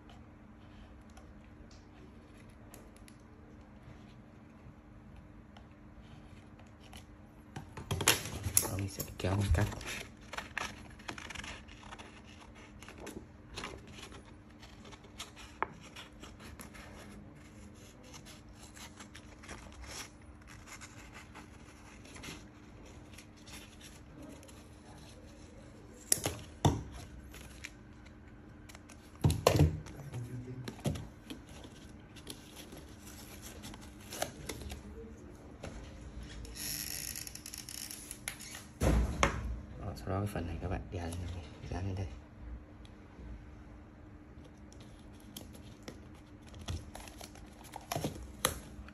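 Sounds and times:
paper rustling: 8.4s - 26.0s, 29.9s - 35.1s.

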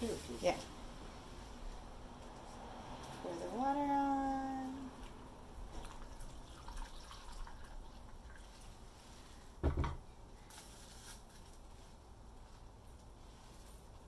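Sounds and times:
water trickling from a pitcher: 5.0s - 8.9s
dull thump: 9.6s - 10.0s.

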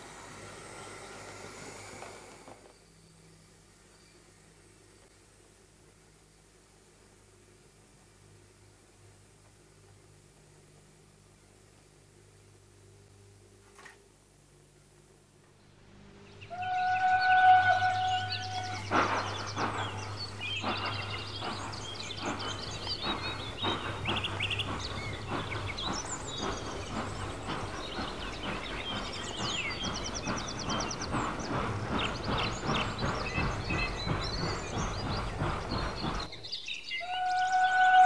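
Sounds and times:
model train wheels clicking: 0.0s - 2.9s, 18.6s - 36.7s
birdsong: 15.5s - 38.0s.

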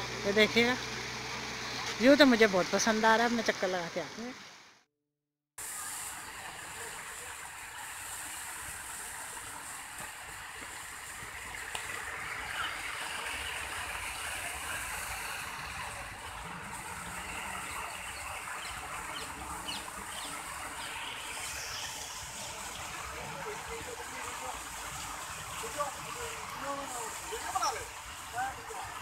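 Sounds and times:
fountain water splashing: 0.0s - 4.7s, 5.6s - 29.0s.

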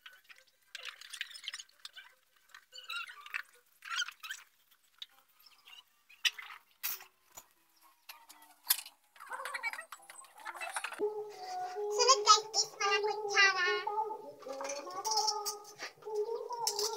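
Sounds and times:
sponge scrubbing and squeaking dishes: 0.0s - 7.4s, 9.1s - 11.0s
dishware clinking: 14.4s - 16.9s.

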